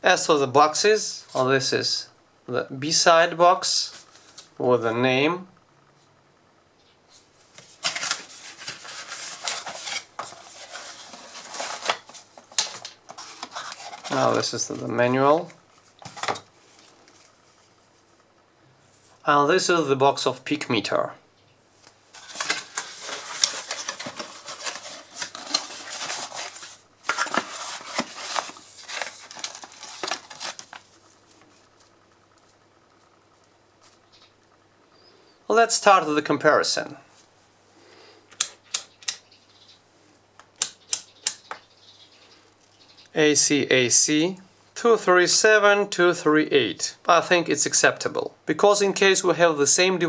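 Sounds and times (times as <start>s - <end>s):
cardboard rustling and scraping: 7.2s - 18.1s, 22.1s - 32.6s.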